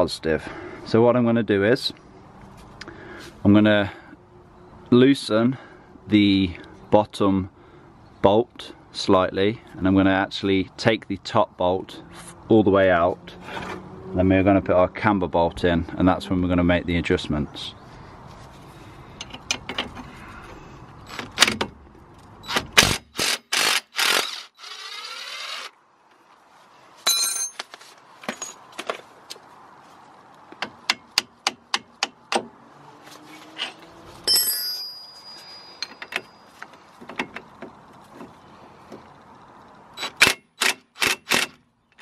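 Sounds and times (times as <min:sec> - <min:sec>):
metal clinks: 0:27.1 - 0:27.6, 0:34.2 - 0:36.9.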